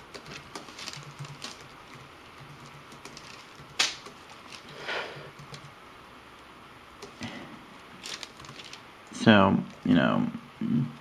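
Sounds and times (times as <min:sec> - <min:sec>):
packaging handled by hand: 0:00.0 - 0:04.9, 0:08.0 - 0:08.9.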